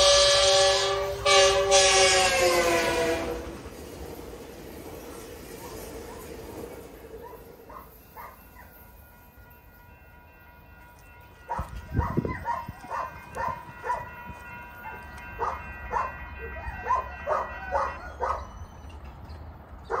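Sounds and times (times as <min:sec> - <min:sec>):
dog barking: 0:11.5 - 0:14.1, 0:14.9 - 0:18.5.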